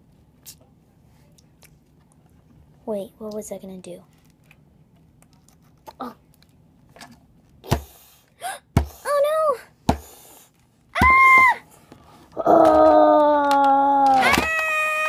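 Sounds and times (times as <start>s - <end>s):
child making play noises: 12.4s - 15.0s
plastic toys thumping on table: 12.5s - 15.0s.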